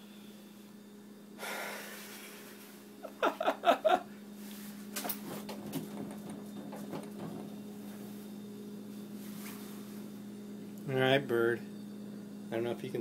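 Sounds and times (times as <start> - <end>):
steady low hum: 0.0 - 13.0
man exhaling: 1.4 - 2.5.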